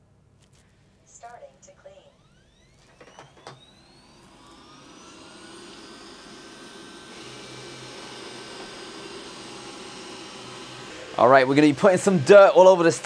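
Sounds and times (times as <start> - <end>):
robot vacuum fan whine: 1.3 - 13.0
robot vacuum clicks: 2.7 - 4.7.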